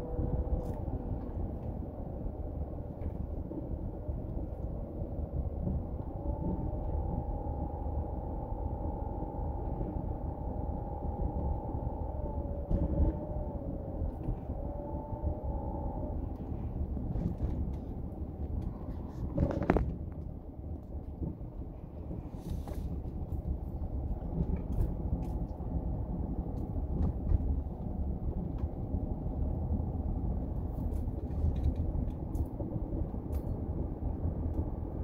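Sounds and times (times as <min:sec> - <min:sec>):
car road and engine rumble: 0:00.0 - 0:35.0
hum shifting in pitch: 0:05.9 - 0:17.0.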